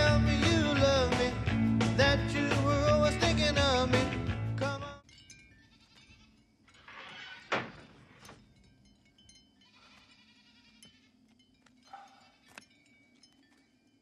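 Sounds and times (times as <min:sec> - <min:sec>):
farm animal bleating: 0:05.6 - 0:08.3, 0:09.6 - 0:11.3, 0:11.9 - 0:12.7.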